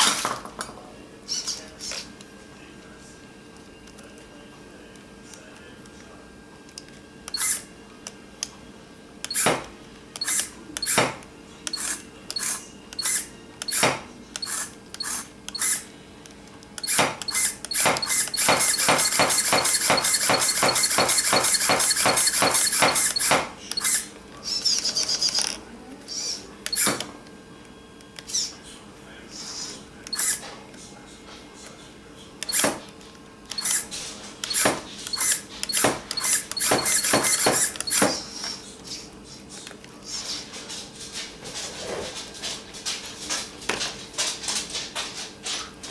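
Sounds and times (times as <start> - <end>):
servo whirring in bursts: 7.3 - 7.7, 10.2 - 11.0, 11.7 - 13.8, 14.4 - 15.9, 16.8 - 24.1, 30.1 - 30.4, 33.5 - 38.4.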